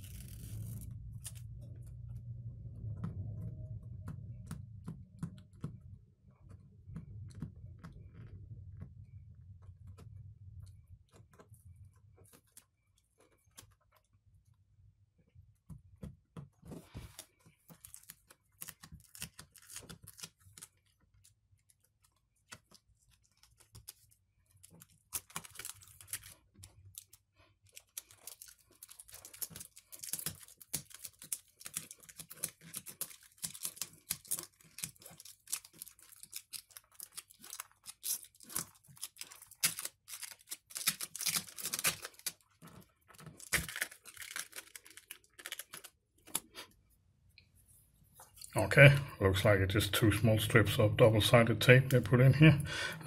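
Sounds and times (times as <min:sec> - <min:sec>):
adhesive tape crackling and tearing: 0:00.0 - 0:01.6, 0:17.7 - 0:46.5.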